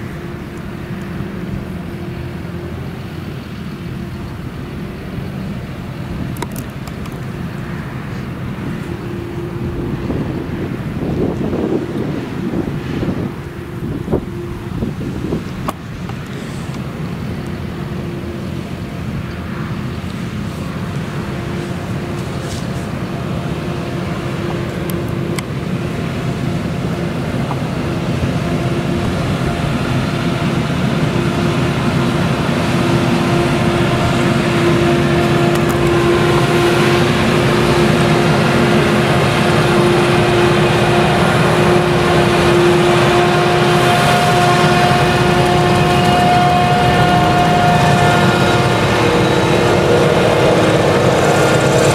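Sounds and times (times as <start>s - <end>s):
harvester engine running under load: 0.0s - 51.9s
tractor engine: 0.0s - 51.9s
header cutting and chopping crop: 21.6s - 23.0s.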